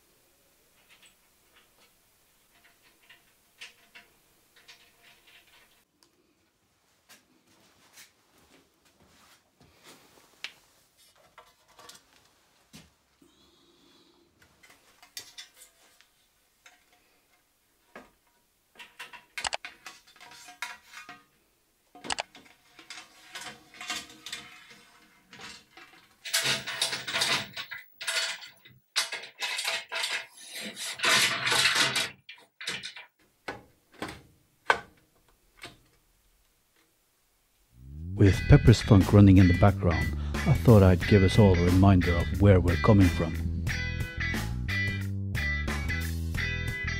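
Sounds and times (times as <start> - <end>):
metal scraping and rattling: 0.8 - 5.9, 18.8 - 21.4, 22.3 - 33.1
metal parts clanking: 2.4 - 5.8, 18.8 - 21.3, 22.0 - 33.1.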